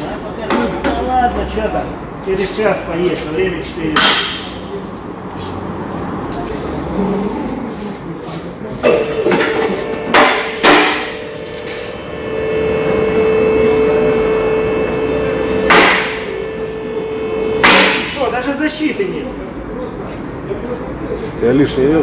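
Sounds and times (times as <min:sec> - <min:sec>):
hydraulic pump motor humming: 0:08.8 - 0:18.3
sharp knocks: 0:09.3 - 0:11.2, 0:15.6 - 0:16.3, 0:17.6 - 0:18.2.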